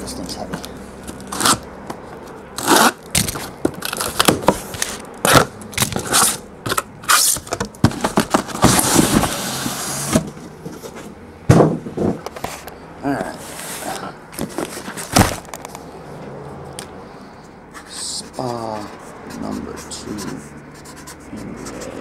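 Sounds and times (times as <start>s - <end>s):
cardboard scraping on table: 7.1s - 11.1s
cardboard cases knocking on table: 11.5s - 12.2s.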